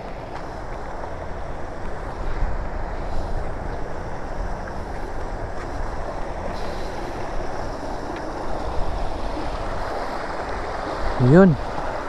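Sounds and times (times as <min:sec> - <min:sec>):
wind rumbling on microphone: 0:00.0 - 0:12.0
water rushing over rocks: 0:05.1 - 0:12.0.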